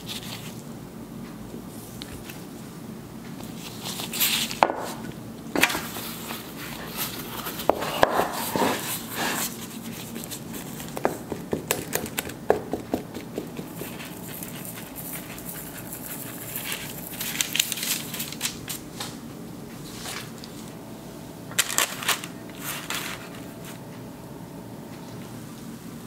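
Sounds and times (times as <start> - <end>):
faint steady hum: 0.0 - 26.0
baking paper crinkling: 3.4 - 5.0, 5.8 - 12.5, 13.2 - 19.2, 21.5 - 23.8.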